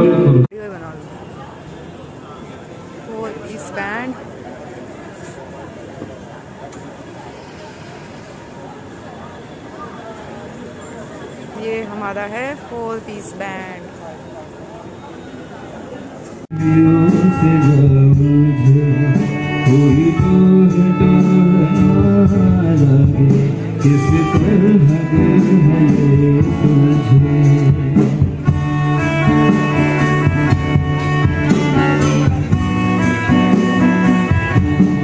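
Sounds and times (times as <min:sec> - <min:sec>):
live band over speakers: 0:00.0 - 0:00.5, 0:16.5 - 0:35.0
person singing: 0:16.5 - 0:28.2.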